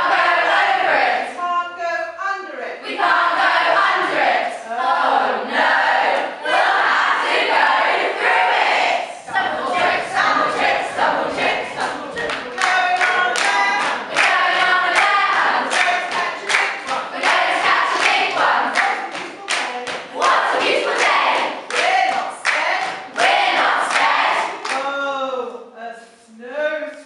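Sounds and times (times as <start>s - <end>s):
group singing and chanting: 0.0s - 1.4s, 2.8s - 25.6s
hands clapping: 11.4s - 24.9s.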